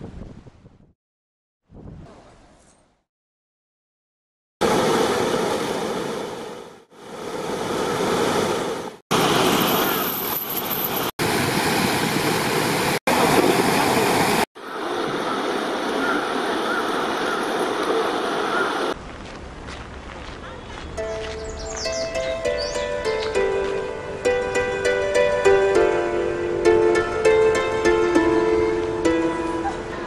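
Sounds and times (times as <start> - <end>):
river water pouring over weir: 4.6 - 19.0.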